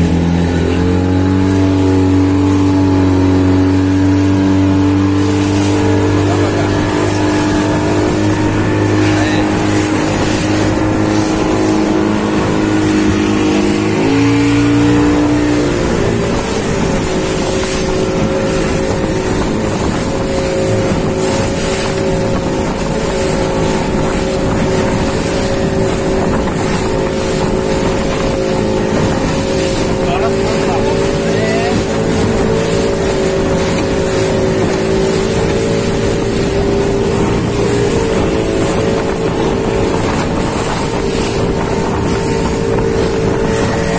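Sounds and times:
motorboat engine running: 0.0s - 43.9s
water rushing along hull: 0.0s - 43.9s.

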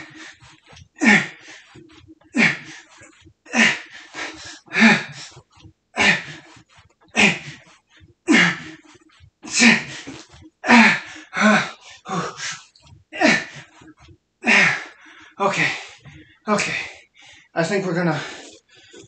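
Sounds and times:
man grunting and breathing out hard: 3.5s - 5.4s, 9.5s - 12.6s.

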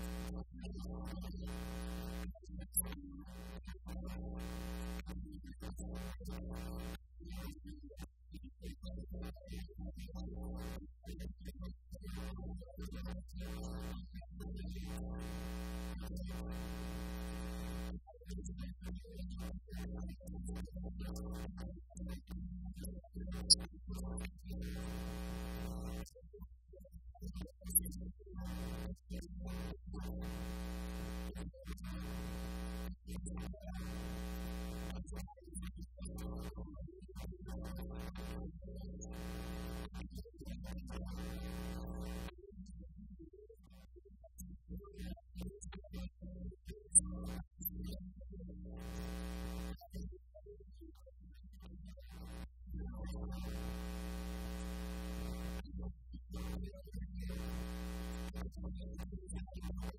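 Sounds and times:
electrical mains hum: 0.0s - 7.0s, 12.3s - 26.0s, 28.4s - 35.1s, 37.6s - 40.0s, 48.6s - 49.8s, 52.0s - 55.8s, 56.4s - 58.9s.

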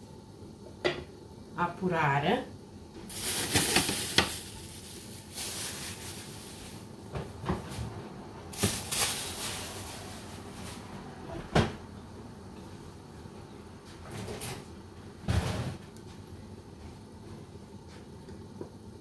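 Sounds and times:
pan simmering hiss: 0.0s - 7.1s.

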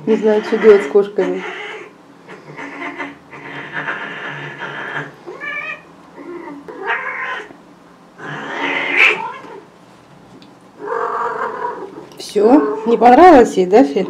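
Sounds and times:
cats yowling: 0.1s - 7.6s, 8.2s - 9.7s, 10.8s - 13.1s.

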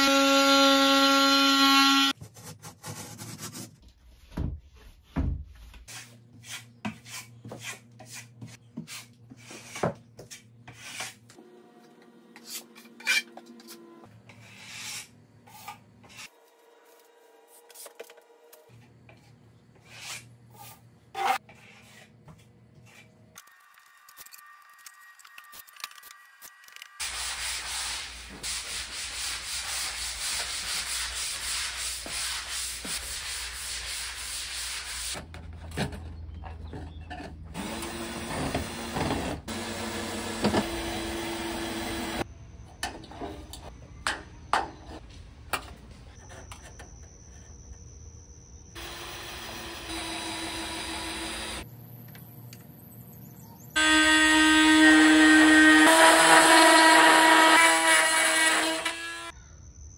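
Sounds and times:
power drill: 0.0s - 2.1s, 37.6s - 42.2s, 48.8s - 51.6s, 53.8s - 59.3s
tool scraping on drywall: 5.9s - 11.3s.

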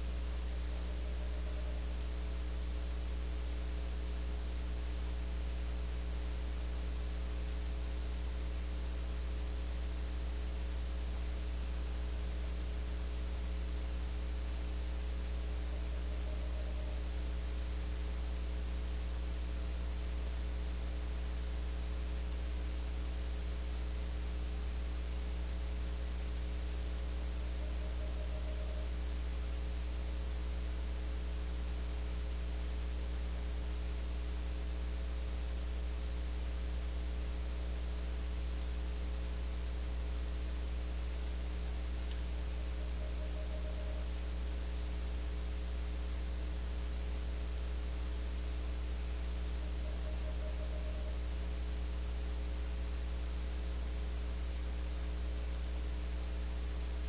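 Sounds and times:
electrical mains hum with hiss: 0.0s - 57.0s
owl trilling: 0.5s - 1.9s, 15.7s - 17.1s, 27.4s - 29.0s, 42.6s - 44.1s, 49.6s - 51.2s.

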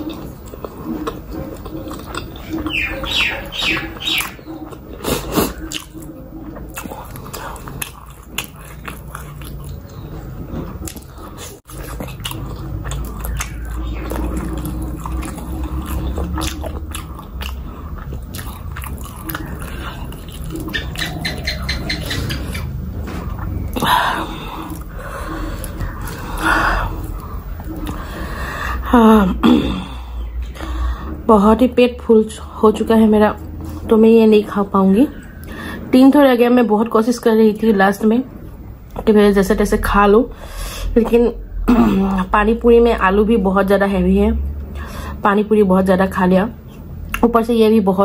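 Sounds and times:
close chewing with wet mouth sounds: 0.0s - 28.8s.

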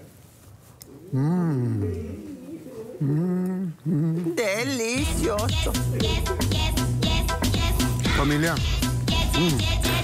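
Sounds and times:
man humming mmm while eating: 0.9s - 2.3s, 3.0s - 4.4s.

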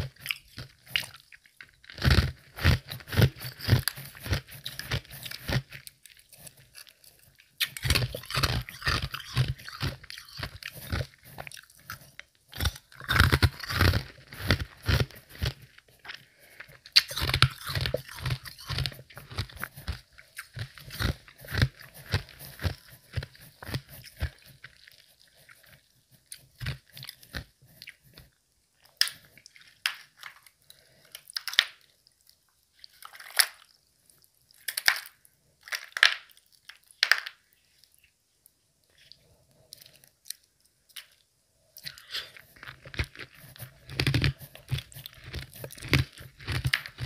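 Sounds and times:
person chewing crunchy ice: 0.0s - 31.6s, 41.8s - 47.0s.

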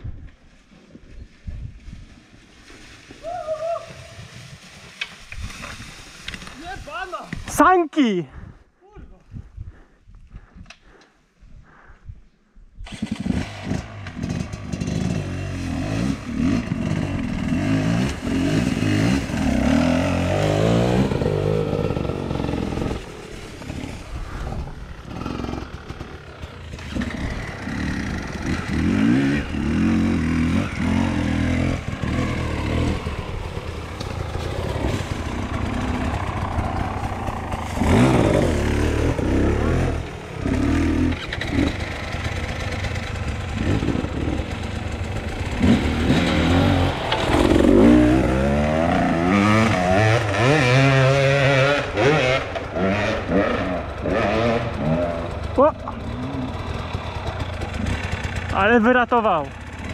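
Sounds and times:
dirt bike engines revving: 12.8s - 59.9s.

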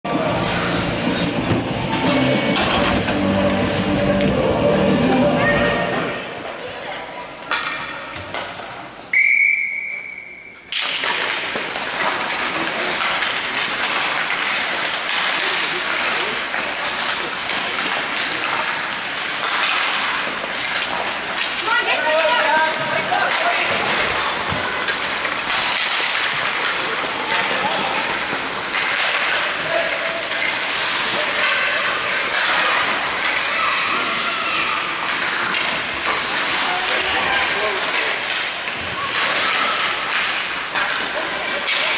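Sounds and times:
rink noise: 0.1s - 6.4s
referee's whistle blast: 9.2s - 10.6s
ice skate blades scraping: 10.8s - 41.9s.

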